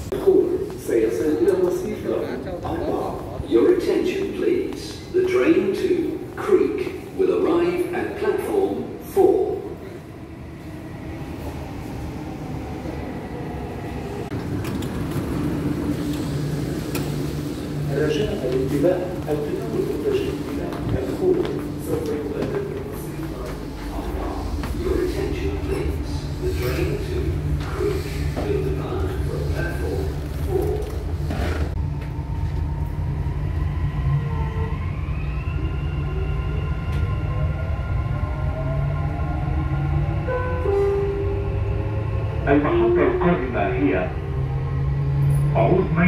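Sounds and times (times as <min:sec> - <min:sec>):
train carriage rumbling: 0:00.0 - 0:46.0
train doors clicking open: 0:14.4 - 0:17.3.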